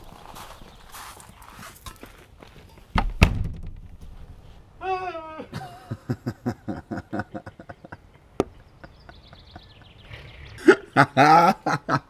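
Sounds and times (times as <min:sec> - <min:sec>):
open laughing: 0:04.8 - 0:12.0
stifled breathy laughter: 0:05.5 - 0:12.0.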